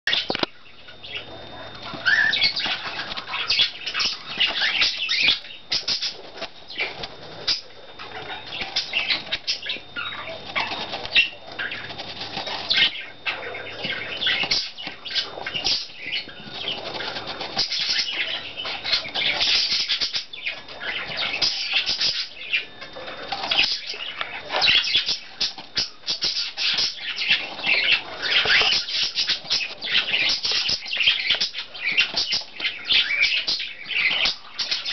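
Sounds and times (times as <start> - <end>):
bird pecking at styrofoam: 1.8 - 13.0, 13.8 - 20.1.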